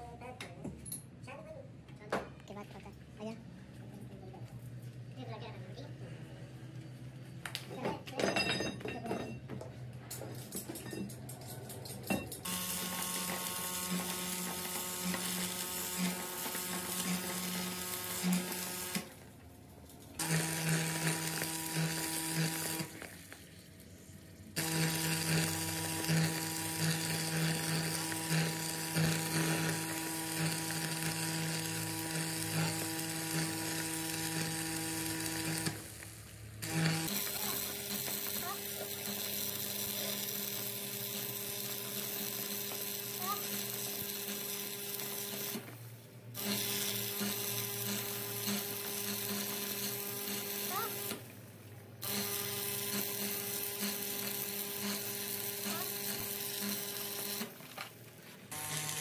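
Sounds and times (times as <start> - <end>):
welding arc crackling and buzzing: 12.4 - 59.0.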